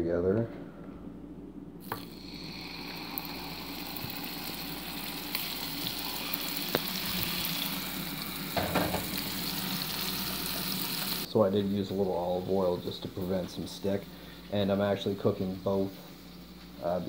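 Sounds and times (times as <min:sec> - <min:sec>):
steaks sizzling in frying pan: 0:01.8 - 0:11.3.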